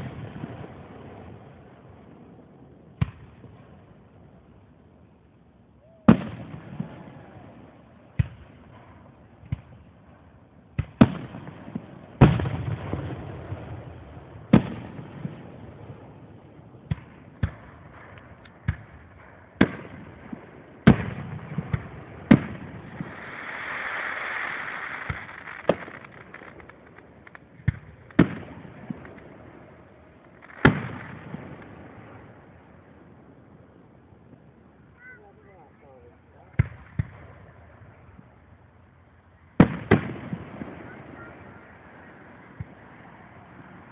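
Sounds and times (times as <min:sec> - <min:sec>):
fireworks booming with echo: 0:00.0 - 0:04.4, 0:05.8 - 0:38.6, 0:39.4 - 0:43.9
soft hiss: 0:14.4 - 0:40.9.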